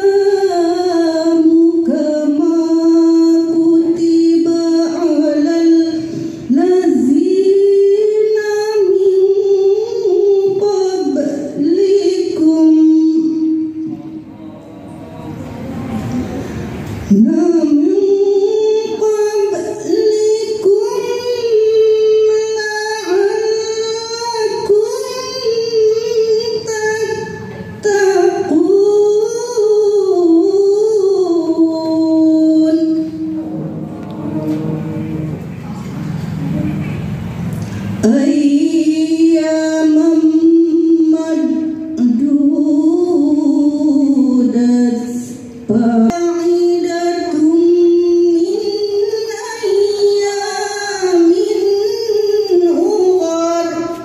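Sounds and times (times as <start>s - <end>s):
woman chanting through loudspeakers: 0.0s - 15.2s, 15.8s - 36.7s, 37.8s - 54.0s.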